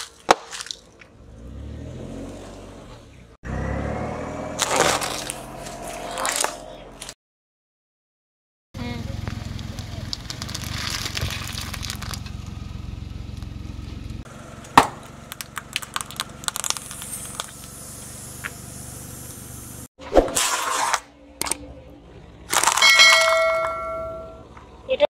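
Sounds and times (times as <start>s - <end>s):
car tyre crushing objects: 0.0s - 2.9s, 4.4s - 7.1s, 9.2s - 19.5s, 22.4s - 24.4s.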